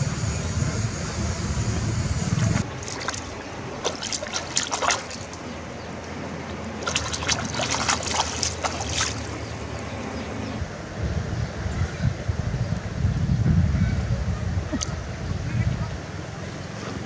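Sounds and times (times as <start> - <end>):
water splashing: 2.5 - 10.1.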